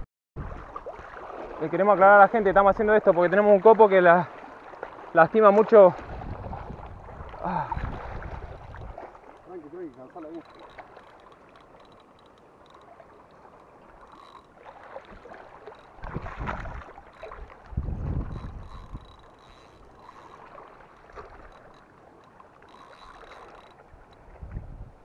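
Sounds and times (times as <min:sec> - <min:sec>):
water washing around legs: 0:00.4 - 0:11.6, 0:12.9 - 0:21.8
fishing reel being cranked: 0:08.6 - 0:16.0, 0:18.0 - 0:24.2.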